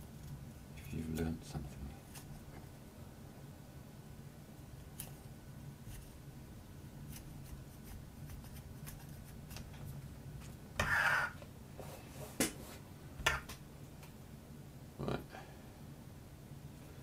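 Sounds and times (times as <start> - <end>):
knife rasping scrape: 10.8 - 11.4.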